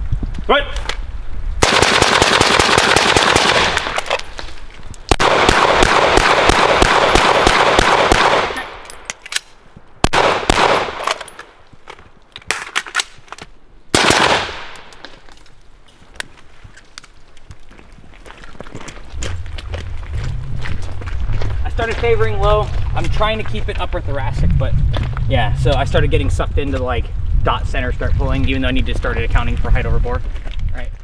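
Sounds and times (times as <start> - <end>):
rifle gunshots echoing: 1.6 - 4.2, 5.1 - 9.0, 10.0 - 11.4, 13.9 - 15.0.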